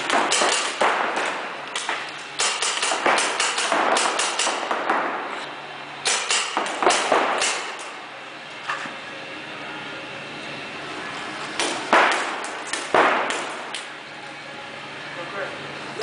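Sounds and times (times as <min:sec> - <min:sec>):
paintball markers firing: 0:00.0 - 0:05.2.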